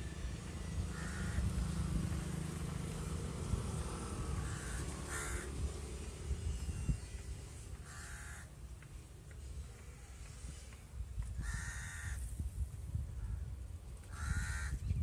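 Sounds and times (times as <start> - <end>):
crows cawing: 0.9 - 1.5, 4.4 - 5.6, 7.8 - 8.6, 11.4 - 12.2, 14.1 - 14.8.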